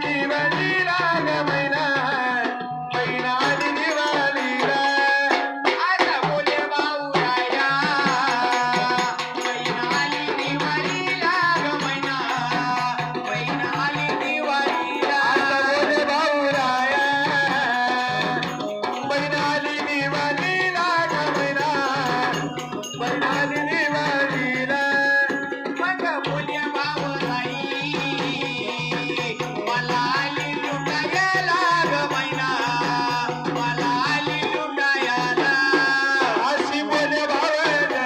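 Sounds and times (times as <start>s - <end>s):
hand drum beat: 0.0s - 38.0s
person singing into a microphone: 0.0s - 38.0s
electronic keyboard melody: 9.2s - 32.1s.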